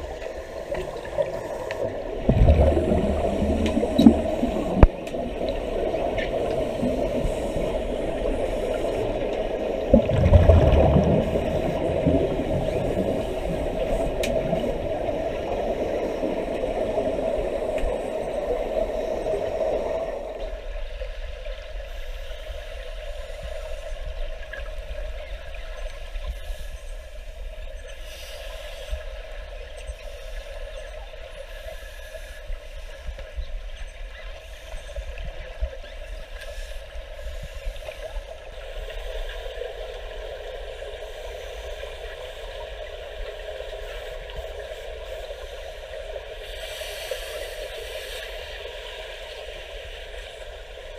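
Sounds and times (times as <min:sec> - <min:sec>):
muffled underwater noise: 0:00.0 - 0:50.9
bubbling of exhaled air: 0:00.8 - 0:18.7
underwater thump: 0:02.2 - 0:05.0.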